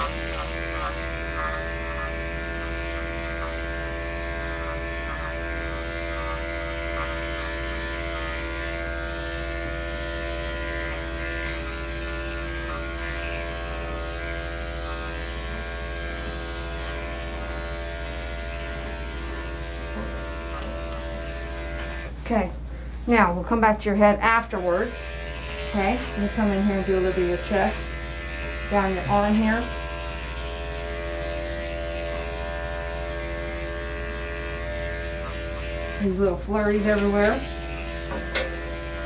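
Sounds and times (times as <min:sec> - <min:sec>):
electric clippers shaving fur: 0:00.0 - 0:22.2, 0:24.3 - 0:39.0.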